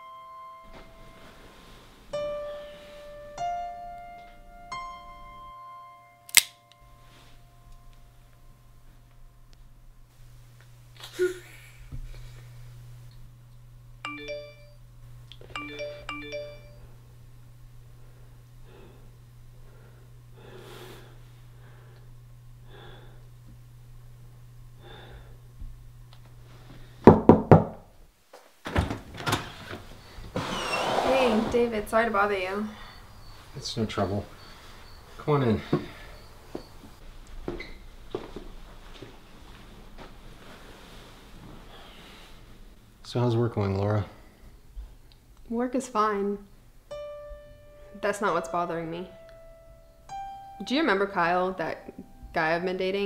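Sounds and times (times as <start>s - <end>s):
slow piano notes: 0.0s - 9.8s, 46.8s - 52.8s
faint low hum: 0.0s - 27.1s, 28.7s - 53.0s
sharp click: 6.3s - 6.8s
loud knocks on door: 27.1s - 27.8s.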